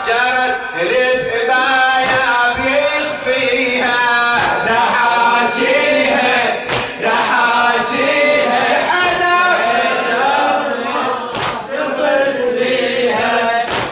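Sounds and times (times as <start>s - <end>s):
lead voice on a microphone: 0.0s - 13.9s
men chanting a lament: 0.0s - 13.9s
hands slapping chests: 4.4s - 4.6s, 6.7s - 7.0s, 11.3s - 11.6s, 13.7s - 13.9s.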